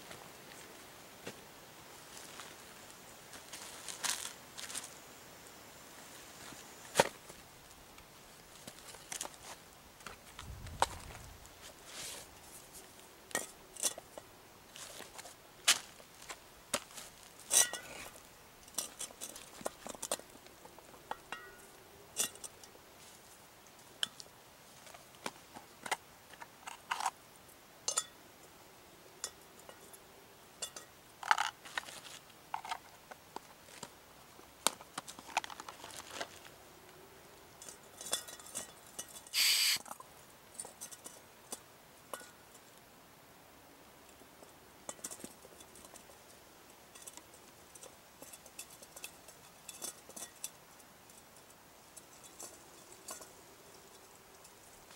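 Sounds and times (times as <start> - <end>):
short rush of noise: 39.4 - 39.8.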